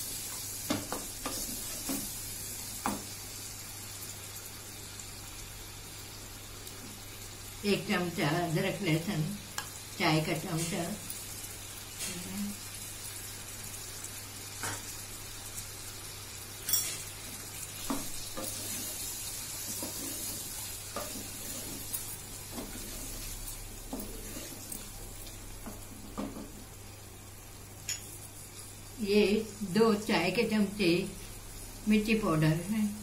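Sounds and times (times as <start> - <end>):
meat and onions sizzling in oil: 0.0 - 33.0
wooden spoon scraping a pot: 17.9 - 24.9.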